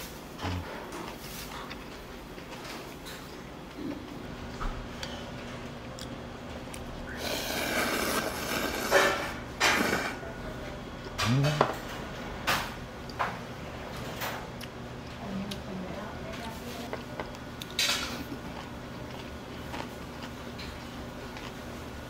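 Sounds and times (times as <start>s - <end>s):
dishes and utensils clinking: 8.8s - 10.0s.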